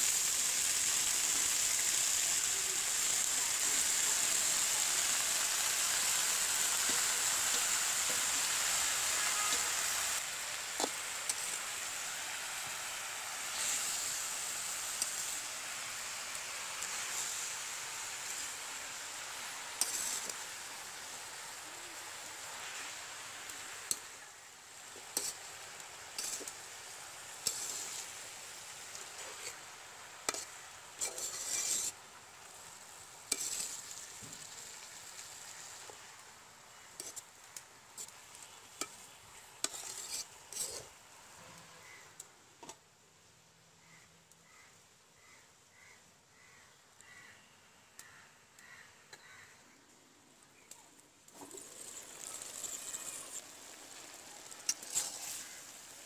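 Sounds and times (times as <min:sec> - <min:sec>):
food sizzling: 0:00.0 - 0:42.8, 0:50.6 - 0:56.0
metal spatula scraping pan: 0:27.4 - 0:28.0, 0:30.3 - 0:31.9, 0:33.3 - 0:33.8, 0:39.6 - 0:40.9, 0:54.7 - 0:55.7.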